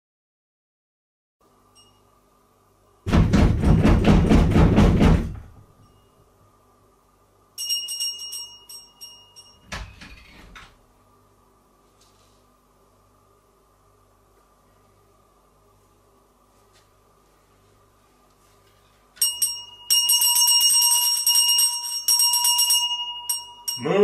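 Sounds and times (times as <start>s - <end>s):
door clunking and rattling open: 3.1s - 5.7s, 9.6s - 10.8s
heavy knocking on a door: 3.1s - 5.7s
bright high jingle: 7.6s - 9.7s, 19.2s - 24.0s.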